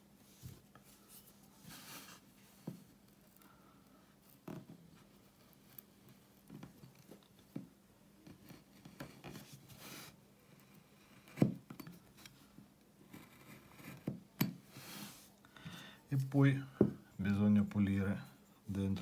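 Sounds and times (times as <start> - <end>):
gouge scraping wood: 13.1 - 14.2.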